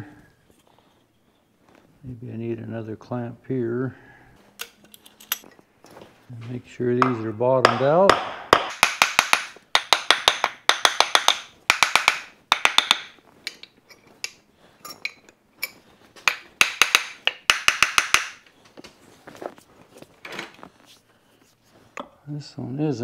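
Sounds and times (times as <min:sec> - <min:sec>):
hammer blows on wooden spokes: 0:06.9 - 0:13.8, 0:16.2 - 0:18.4.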